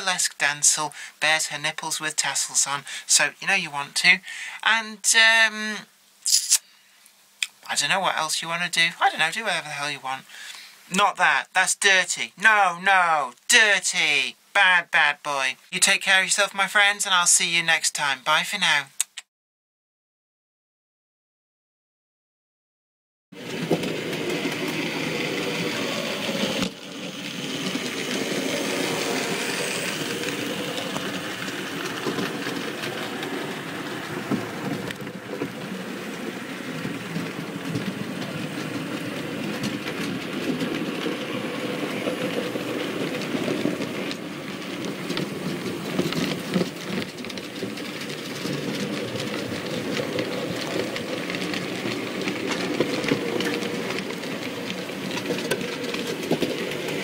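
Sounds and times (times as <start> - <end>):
model train rolling on track: 23.4 - 57.0
small irregular clicks: 26.5 - 57.0.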